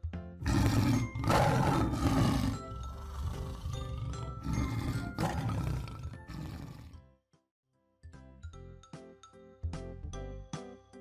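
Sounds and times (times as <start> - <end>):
background music: 0.0 - 11.0
tiger growling: 0.4 - 7.0
tiger roaring: 0.4 - 7.0.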